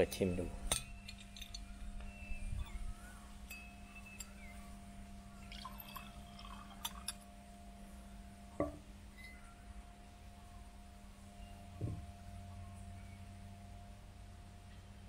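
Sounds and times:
wine pouring into glass: 5.4 - 7.1.

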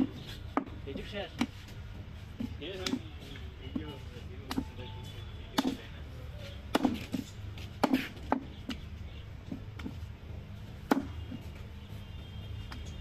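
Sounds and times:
knife chopping meat and bone: 5.6 - 5.9, 6.7 - 7.2, 7.8 - 8.8, 10.9 - 11.3.

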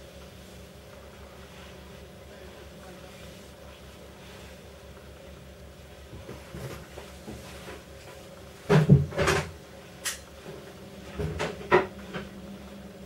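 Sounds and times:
low steady hum: 0.0 - 13.0
objects knocking and banging: 8.7 - 9.6.

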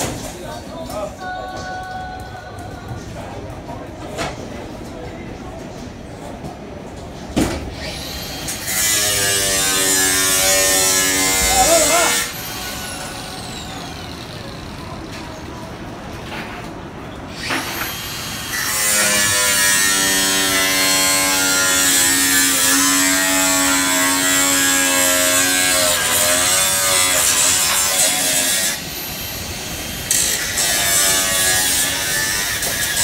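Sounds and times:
angle grinder cutting steel: 7.8 - 14.8, 17.3 - 33.0.

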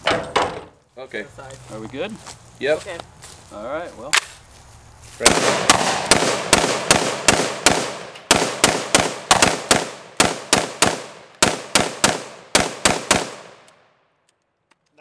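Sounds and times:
rapid gunfire with echo: 5.2 - 13.7.

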